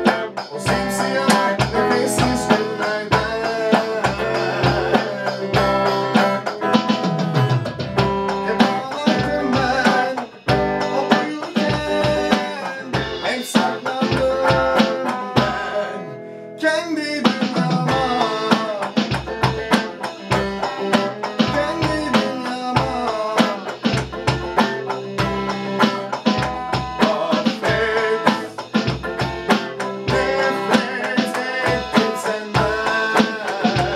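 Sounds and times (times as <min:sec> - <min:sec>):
electronic drum beat: 0:00.0 - 0:15.8, 0:17.2 - 0:33.9
electric guitar melody: 0:00.0 - 0:33.9.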